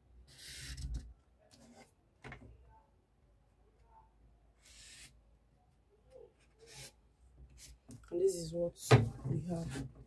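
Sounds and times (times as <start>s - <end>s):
marker pen scratching paper: 0.2s - 1.0s, 4.6s - 5.2s, 6.4s - 7.8s.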